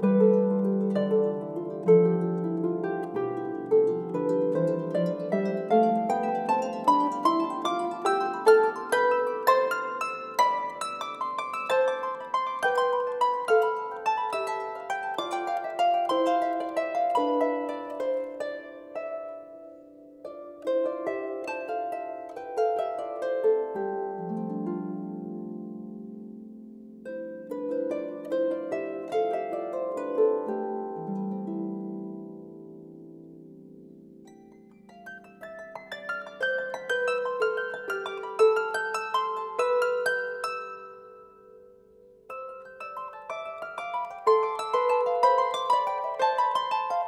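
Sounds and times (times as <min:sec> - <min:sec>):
harp plucking: 0:00.0 - 0:47.0.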